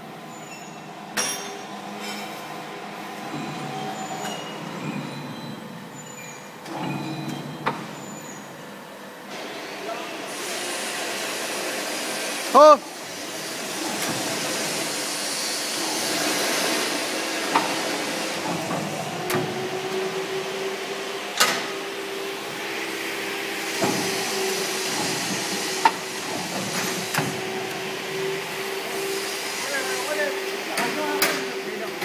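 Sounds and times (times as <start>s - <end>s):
mechanical hiss: 22.3s - 30.5s.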